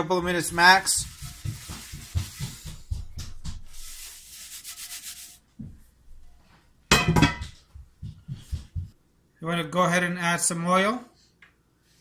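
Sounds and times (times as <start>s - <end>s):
paper towel scraping skillet: 0.2s - 3.0s, 3.6s - 5.5s.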